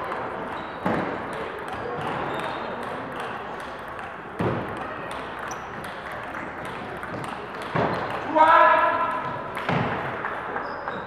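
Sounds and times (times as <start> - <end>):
table tennis balls clicking: 0.0 - 8.4
sports hall hum: 0.0 - 11.0.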